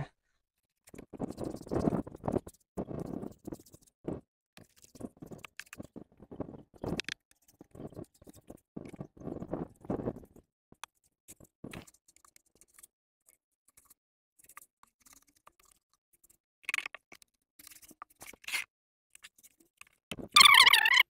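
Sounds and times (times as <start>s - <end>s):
paintbrush scraping on plaster: 0.8s - 10.4s.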